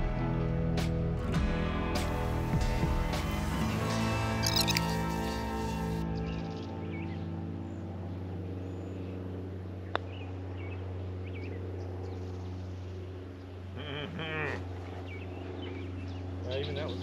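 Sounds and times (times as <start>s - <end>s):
low engine hum: 0.0s - 17.0s
short chattering call: 13.8s - 14.7s.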